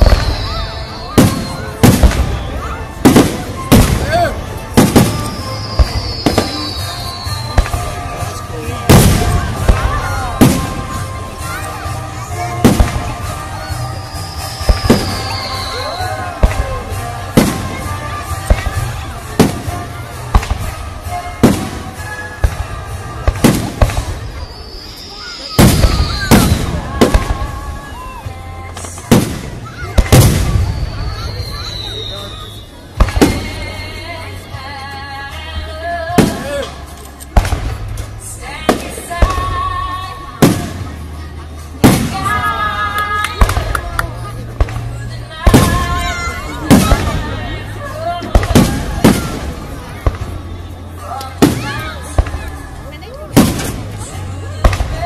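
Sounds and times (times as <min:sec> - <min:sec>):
firework booms with echo: 0:00.0 - 0:08.1, 0:08.8 - 0:11.9, 0:12.6 - 0:28.2, 0:29.0 - 0:33.6, 0:37.4 - 0:38.1, 0:41.8 - 0:42.4, 0:44.6 - 0:47.4, 0:48.2 - 0:50.5, 0:53.3 - 0:54.0, 0:54.6 - 0:55.0.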